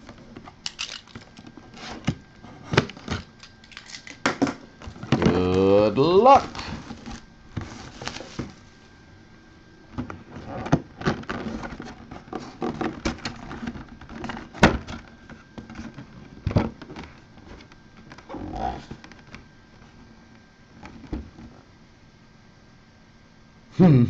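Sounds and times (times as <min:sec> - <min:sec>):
cardboard box being handled: 0:06.3 - 0:08.6
plastic shrink wrap crinkling: 0:06.3 - 0:08.6.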